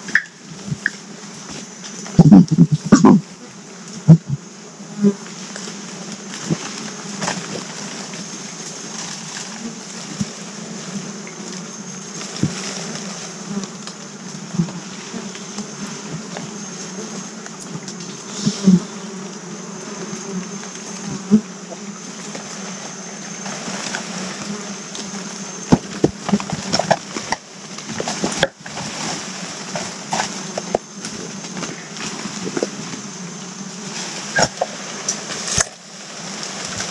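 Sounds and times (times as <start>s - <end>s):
insects buzzing: 0.0s - 36.9s
sharp snaps and crackles: 25.7s - 29.2s, 34.3s - 35.8s.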